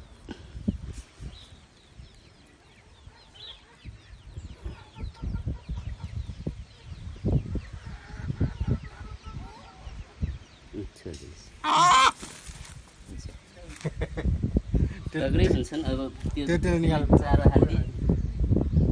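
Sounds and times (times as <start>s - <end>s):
chickens clucking: 2.4s - 10.4s, 11.0s - 12.8s.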